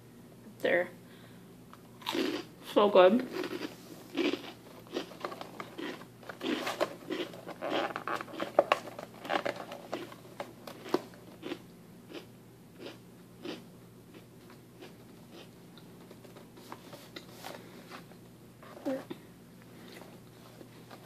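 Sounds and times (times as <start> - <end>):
crunchy crackers being chewed: 1.9 - 2.5, 3.3 - 15.9.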